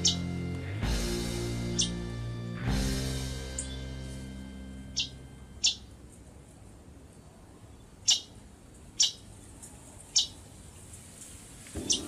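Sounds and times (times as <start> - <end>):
bird chip calls: 0.0 - 0.3, 1.7 - 2.0, 4.9 - 5.9, 8.0 - 8.4, 9.0 - 9.3, 10.1 - 10.4, 11.8 - 12.0.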